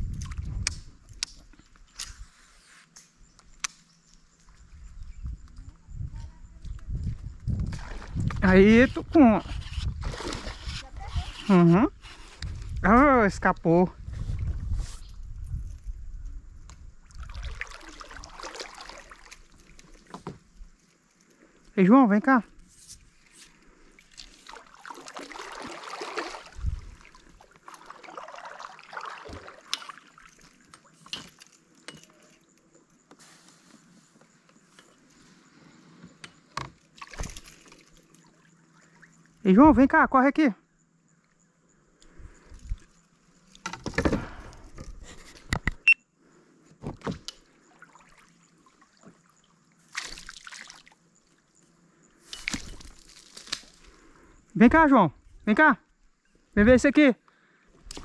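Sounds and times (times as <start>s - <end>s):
water sloshing and splashing: 0.0s - 2.0s, 7.5s - 11.5s, 16.9s - 21.7s, 23.0s - 32.5s, 36.5s - 39.4s, 42.3s - 45.4s, 46.9s - 51.6s, 52.2s - 54.1s.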